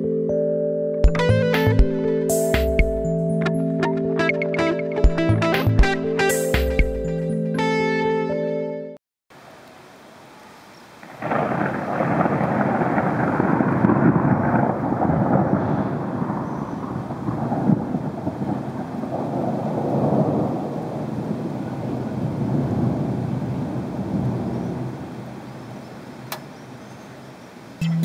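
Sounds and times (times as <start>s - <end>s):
rain: 9.3s - 27.8s
thunder: 11.0s - 25.2s.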